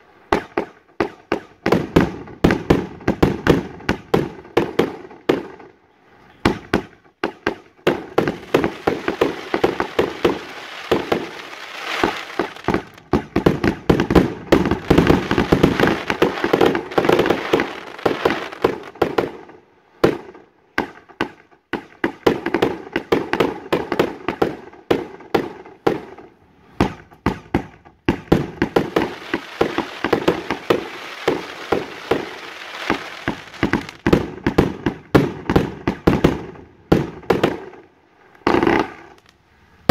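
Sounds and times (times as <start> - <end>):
firework aerial bursts: 6.4 - 20.4, 28.1 - 39.9.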